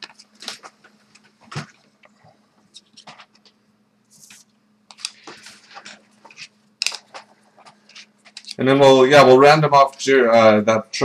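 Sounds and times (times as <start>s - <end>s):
cards scraping and tapping on desk: 0.0s - 8.6s.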